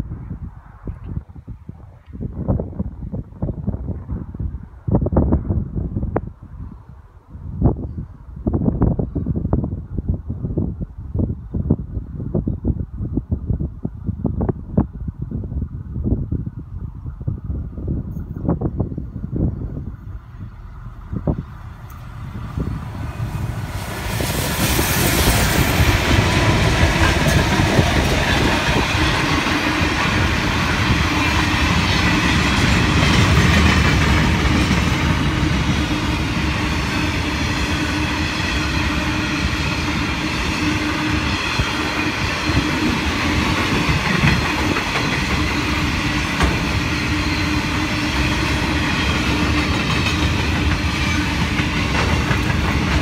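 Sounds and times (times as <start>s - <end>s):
diesel locomotives passing: 17.4s - 53.0s
train wheels clacking on rails: 21.9s - 53.0s.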